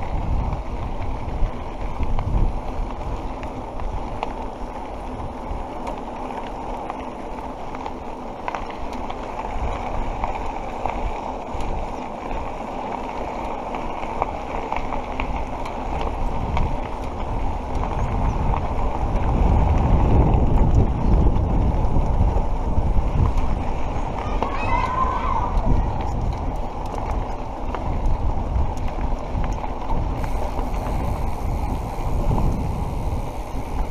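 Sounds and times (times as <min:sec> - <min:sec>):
wind buffeting microphone: 0:00.0 - 0:06.6, 0:13.4 - 0:33.9
bike tyres rolling on dirt: 0:00.0 - 0:33.9.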